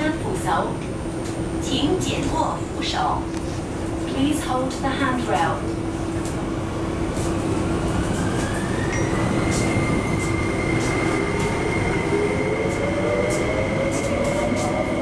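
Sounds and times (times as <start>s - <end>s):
wheel and tunnel rumble: 0.0s - 15.0s
lower whine rising: 8.0s - 15.0s.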